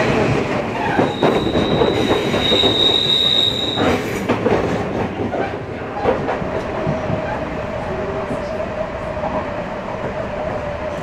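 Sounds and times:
train running gear rumble: 0.0 - 11.0
train wheels squealing: 0.8 - 4.1.

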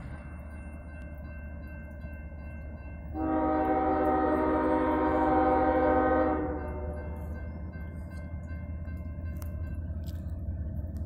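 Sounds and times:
locomotive air horn blast: 3.2 - 7.2.

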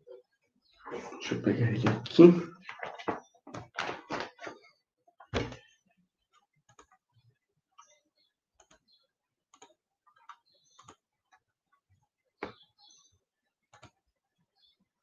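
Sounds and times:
faint clicks and taps: 5.2 - 8.0, 8.6 - 12.8, 13.7 - 14.0.

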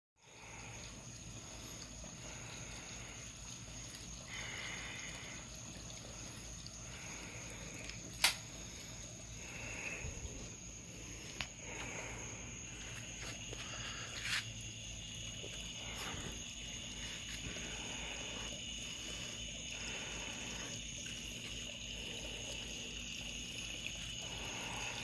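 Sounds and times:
gas fire hissing: 1.4 - 25.0
sharp click: 8.2 - 8.4.

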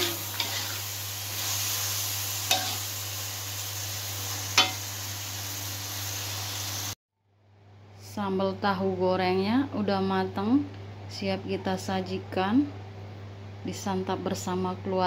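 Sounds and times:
food sizzling in a wok: 0.0 - 7.0.

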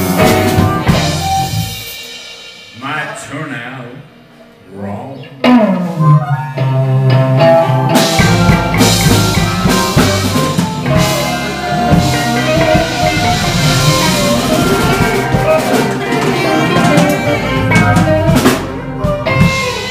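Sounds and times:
drum and cymbal hits: 0.0 - 3.6, 8.0 - 19.9
electric blues band playing: 0.0 - 19.9.

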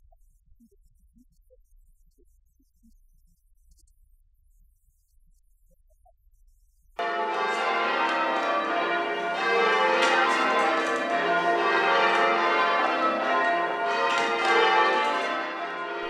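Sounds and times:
church bells change ringing: 7.0 - 16.0.

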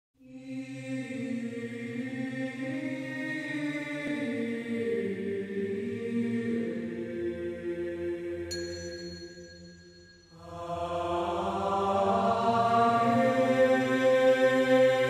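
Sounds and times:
vocal group singing in harmony: 0.2 - 9.2, 10.3 - 15.0.

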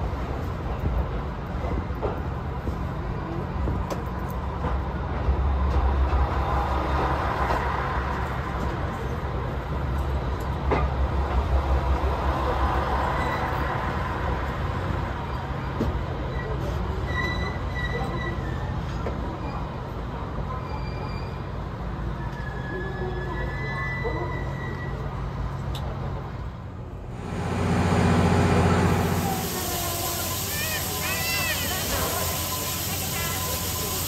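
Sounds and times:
train rumbling on rails: 0.0 - 34.0
high-pitched wheel squeal: 22.1 - 25.2.

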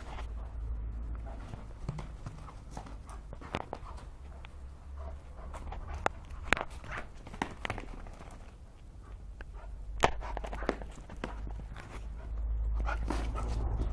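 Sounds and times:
dog claws scrabbling on concrete: 1.7 - 4.6, 5.5 - 8.6, 10.0 - 13.6.

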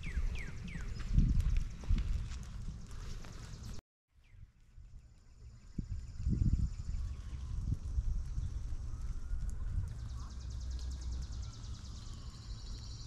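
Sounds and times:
steady low rumble: 4.5 - 13.0.

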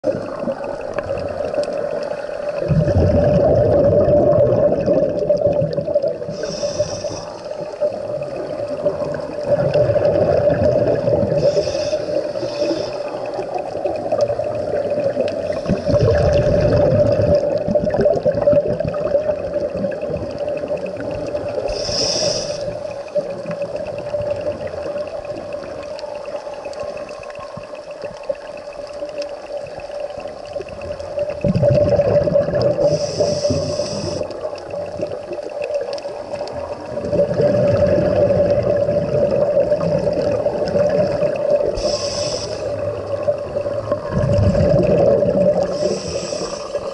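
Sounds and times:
diver's exhaled bubbles: 2.6 - 6.8, 7.7 - 12.8, 13.5 - 25.4, 31.1 - 35.4, 36.7 - 46.9
hissing breaths: 6.3 - 7.8, 11.3 - 13.8, 21.6 - 23.1, 32.8 - 34.6, 41.7 - 43.0, 45.6 - 46.9.

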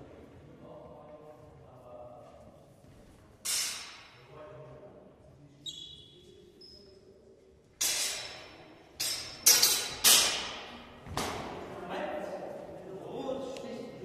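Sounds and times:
steel swords clashing: 3.5 - 4.2, 7.8 - 10.7.

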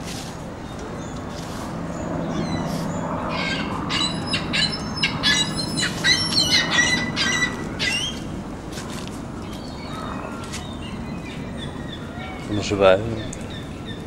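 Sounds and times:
gulls squawking: 3.3 - 8.3, 9.7 - 14.0.

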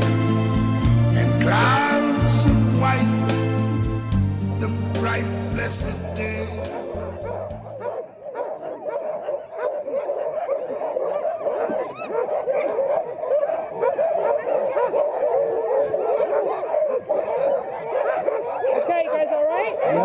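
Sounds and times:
dogs barking and yelping: 5.0 - 20.0.

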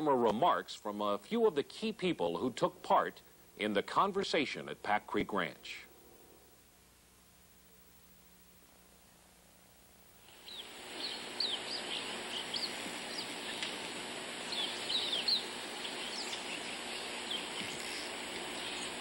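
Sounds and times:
steady outdoor hiss: 0.0 - 19.0
songbirds chirping: 10.2 - 19.0.

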